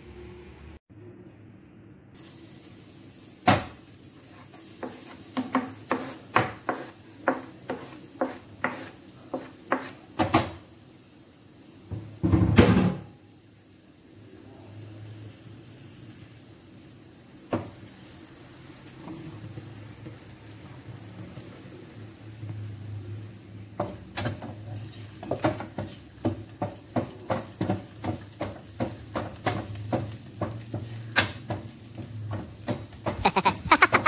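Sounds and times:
food sizzling in pan: 2.1s - 34.0s
wooden spatula scraping pan: 4.2s - 10.0s.

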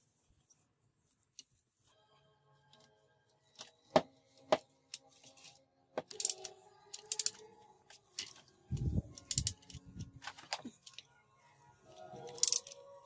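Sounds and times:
ratchet wrench clicking: 8.8s - 9.8s.

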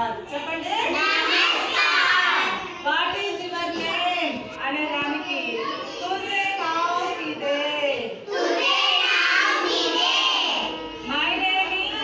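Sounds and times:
children reciting in chorus: 0.9s - 2.8s, 8.2s - 11.1s.

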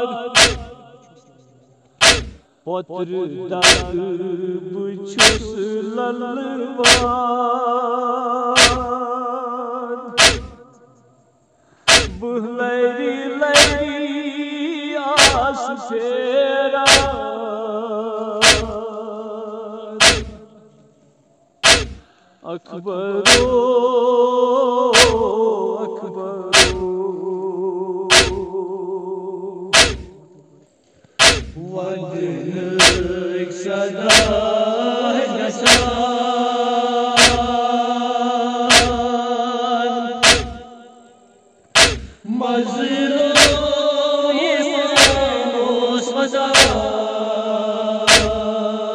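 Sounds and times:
men chanting a lament: 0.0s - 10.7s, 11.9s - 20.8s, 21.6s - 30.4s, 31.2s - 40.9s, 41.8s - 48.9s
chest-beating thumps: 0.4s - 0.8s, 2.0s - 2.4s, 3.6s - 4.0s, 5.2s - 5.5s, 6.8s - 7.2s, 8.6s - 8.9s, 10.2s - 10.6s, 11.9s - 12.2s, 13.6s - 13.9s, 15.2s - 15.4s, 16.9s - 17.2s, 18.4s - 18.8s, 20.0s - 20.5s, 21.6s - 22.1s, 23.3s - 23.6s, 25.0s - 25.3s, 26.5s - 26.9s, 28.1s - 28.5s, 29.8s - 30.2s, 31.2s - 31.6s, 32.8s - 33.2s, 34.1s - 34.4s, 35.7s - 36.0s, 37.2s - 37.6s, 38.7s - 39.1s, 40.2s - 40.6s, 41.8s - 42.2s, 43.4s - 43.7s, 45.0s - 45.3s, 48.1s - 48.4s.

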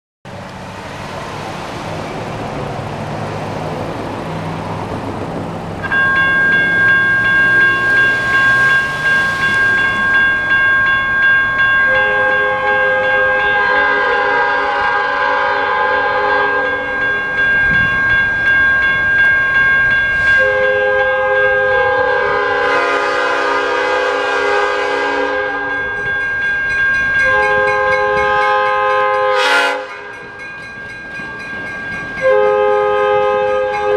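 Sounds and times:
crossing bells ringing: 1.8s - 5.2s, 5.8s - 33.9s
train air horn blasts: 11.9s - 17.1s, 20.3s - 25.8s, 27.2s - 30.1s, 32.2s - 33.9s.

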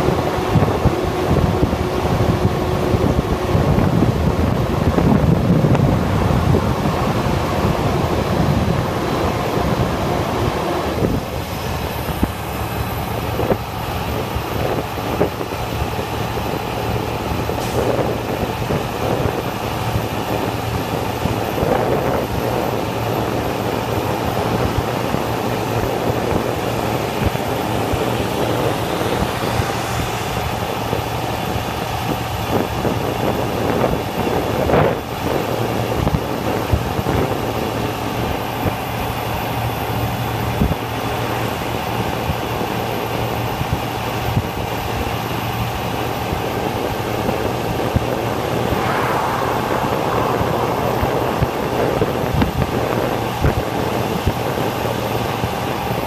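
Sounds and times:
vehicle engine hum: 0.0s - 42.3s, 43.0s - 56.0s
tyre and wind rush: 11.0s - 34.3s, 47.3s - 54.8s.

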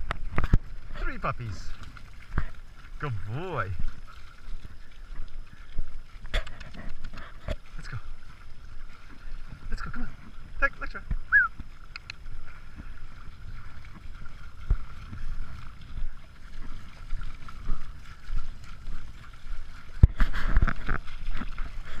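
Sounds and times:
feet splashing through water: 0.0s - 22.0s
wind rumbling on microphone: 0.0s - 22.0s.

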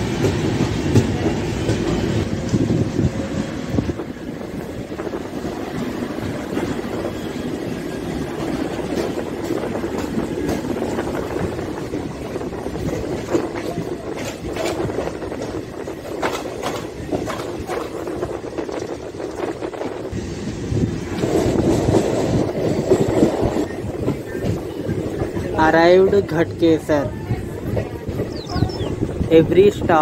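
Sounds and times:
train coaches rumbling by: 0.0s - 30.0s
wheels clicking over rail joints: 8.2s - 19.8s.

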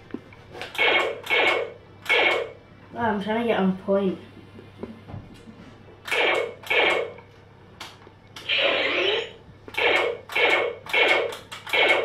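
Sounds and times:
electronic toy blaster zaps: 0.8s - 2.5s, 6.1s - 7.1s, 8.4s - 12.0s.

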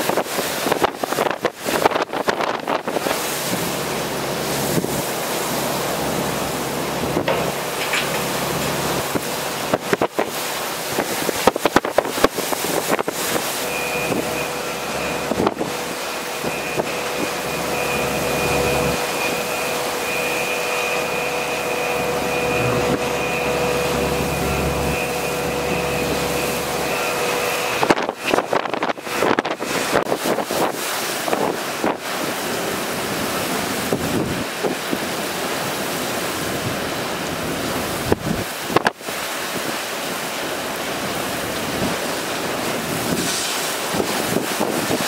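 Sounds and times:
gusts buffeting microphone: 0.0s - 32.6s, 33.2s - 35.2s, 37.8s - 39.8s, 41.4s - 45.0s
driving rain: 0.0s - 45.0s
hurricane wind: 0.0s - 45.0s
steady high whine: 0.8s - 45.0s.

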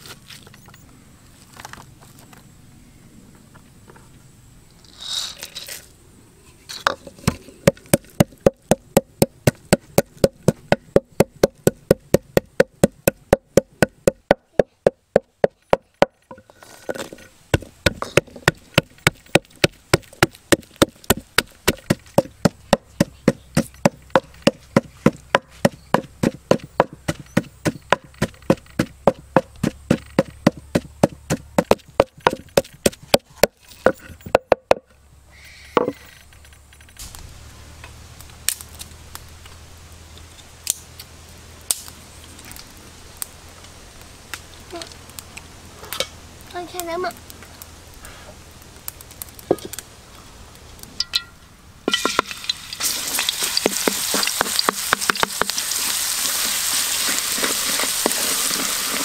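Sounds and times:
knife chopping on wooden board: 17.6s - 33.5s.

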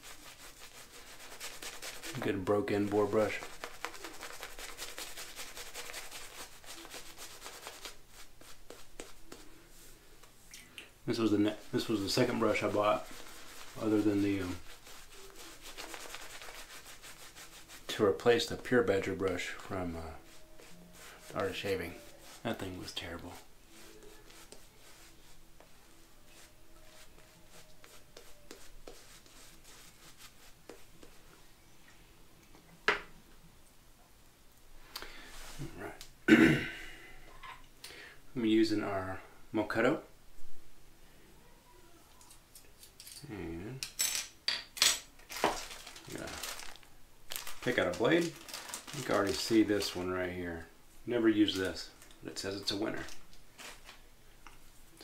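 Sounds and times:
shaving brush scratchy rubbing: 0.0s - 9.9s, 11.1s - 31.3s, 45.4s - 46.7s, 47.4s - 50.3s.

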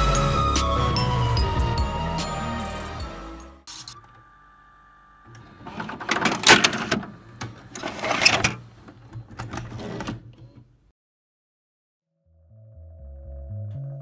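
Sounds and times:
vcr ejecting cassette whirring: 3.8s - 8.6s.

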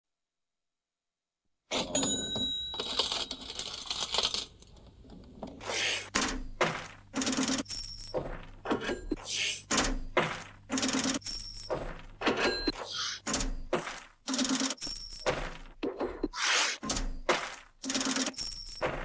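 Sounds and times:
coins clinking and rattling: 1.8s - 4.7s, 6.7s - 8.4s, 10.4s - 13.1s, 13.8s - 15.7s, 17.4s - 19.0s.

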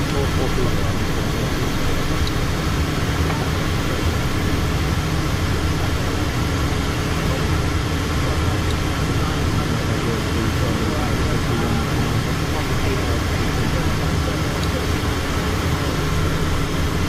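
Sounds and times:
jet engine drone: 0.0s - 17.0s
low hums: 0.0s - 17.0s.

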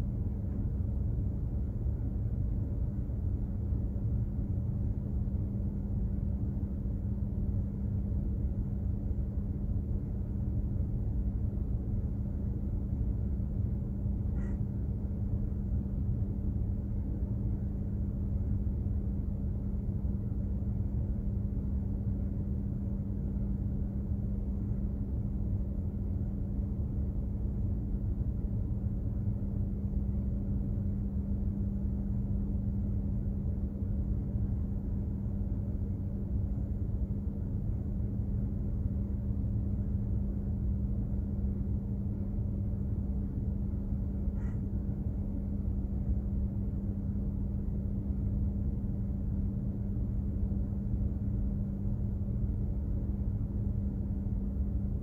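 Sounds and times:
constant hum: 0.0s - 55.0s
ship machinery drone: 0.0s - 55.0s.

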